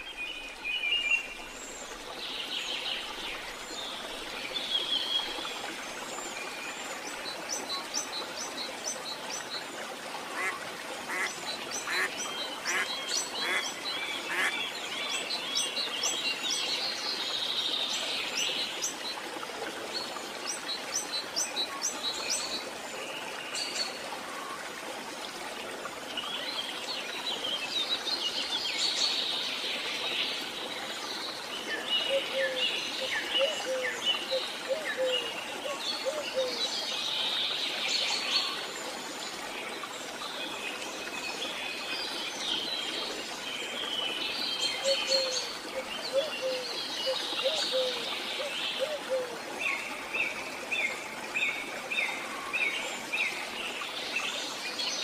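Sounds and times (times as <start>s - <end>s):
birds chirping and trilling: 10.4s - 15.7s.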